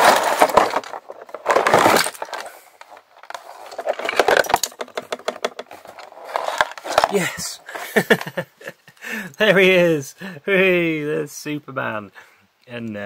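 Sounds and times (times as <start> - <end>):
plastic pieces rattling and clattering: 0.0 - 7.4.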